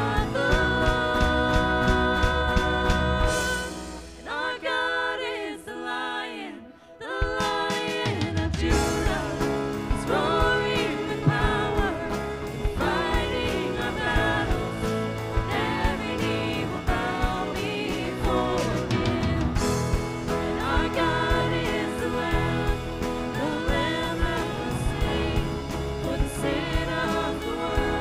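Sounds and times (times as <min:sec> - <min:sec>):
people singing: 0:00.0 - 0:28.0
band with steady beat: 0:07.4 - 0:28.0.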